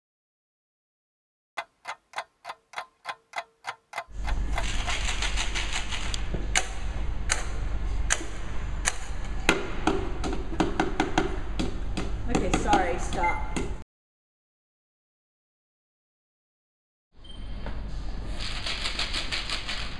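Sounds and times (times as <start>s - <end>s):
clock ticking: 1.6s - 4.7s.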